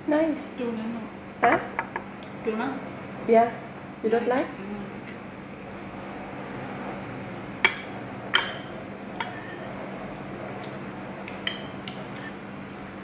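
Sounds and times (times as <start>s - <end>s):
metal spoon clinking on plate: 7.6s - 9.6s.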